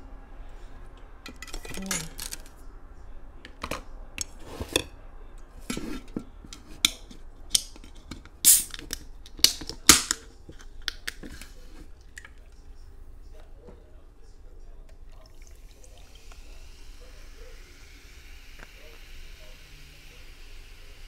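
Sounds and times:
clicks handling soda can: 5.7 - 11.5
can cracking open: 6.9 - 11.3.

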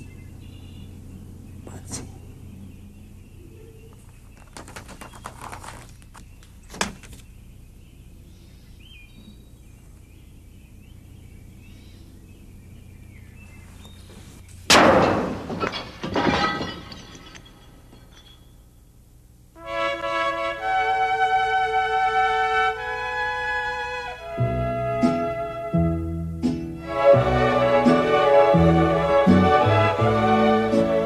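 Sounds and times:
loud crash with rattling: 14.7 - 18.4.

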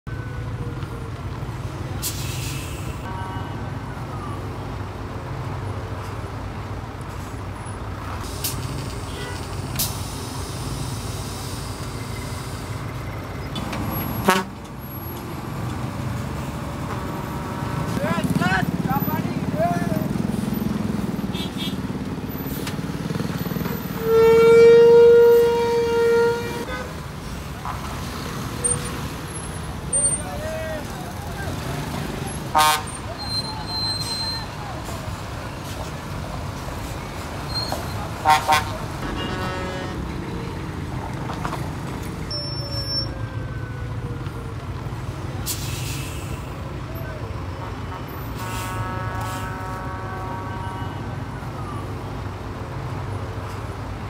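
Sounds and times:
bus diesel engines rumbling: 0.1 - 54.0
air brakes hissing: 2.0 - 3.1, 8.2 - 13.2, 45.4 - 46.6
engines running: 7.5 - 24.1
bus air horn blast: 14.0 - 14.6, 21.3 - 21.8, 23.8 - 26.9, 32.5 - 34.2, 38.2 - 40.1, 47.9 - 51.0.

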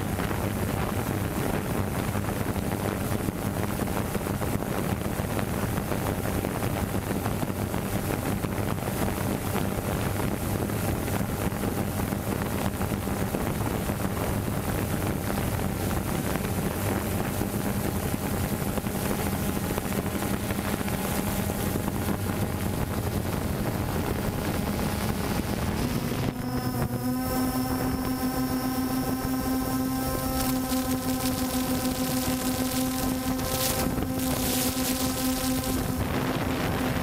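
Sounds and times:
drone propellers whirring: 0.0 - 37.0
wind rushing over microphone: 0.0 - 37.0.

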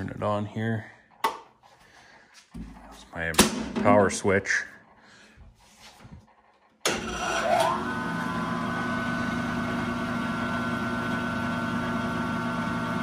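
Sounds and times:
band saw motor whining: 6.9 - 13.0.

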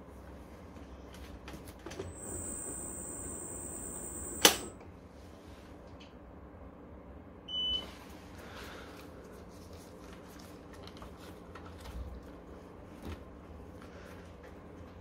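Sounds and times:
low steady hum: 1.9 - 7.8
short high-pitched electronic beep: 2.1 - 4.7.

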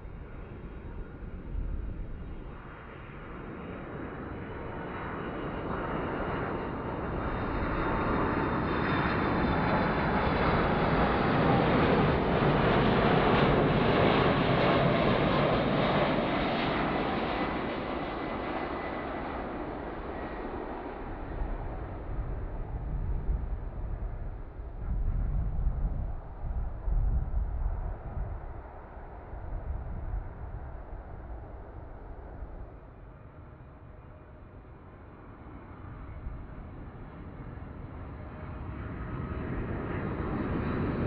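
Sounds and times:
jet engines roaring with high whine: 0.0 - 41.0.

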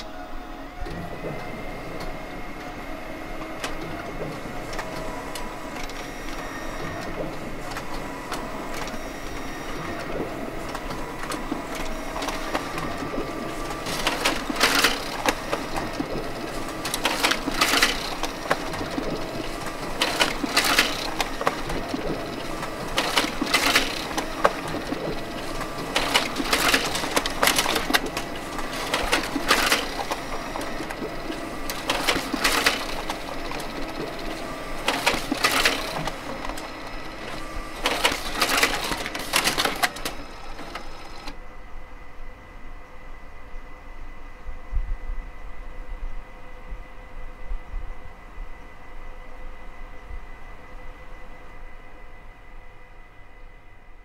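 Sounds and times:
printer mechanism whirring: 0.0 - 41.5.

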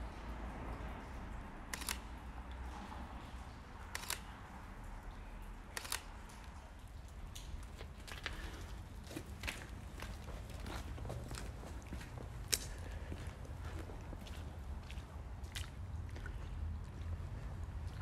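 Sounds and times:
camera shutter double click: 1.7 - 2.0.

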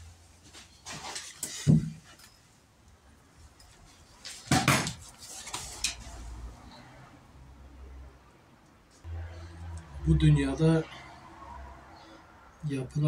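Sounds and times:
objects knocking and clattering: 0.9 - 2.4, 4.3 - 5.1.

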